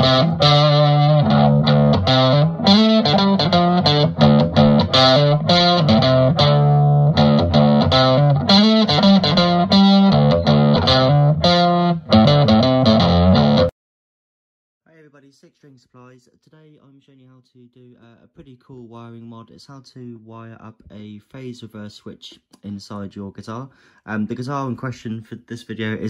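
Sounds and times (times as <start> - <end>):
distorted electric guitar riff: 0.0 - 13.7.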